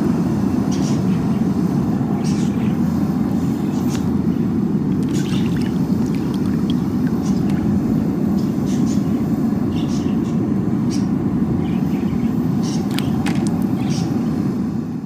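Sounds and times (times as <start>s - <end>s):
hand sloshing in bucket of water: 4.9s - 8.1s, 12.9s - 13.7s
small splashes: 4.9s - 8.2s, 12.7s - 13.9s.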